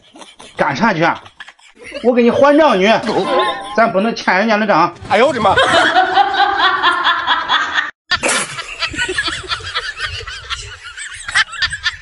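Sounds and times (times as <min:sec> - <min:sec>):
person laughing: 0:00.0 - 0:04.4.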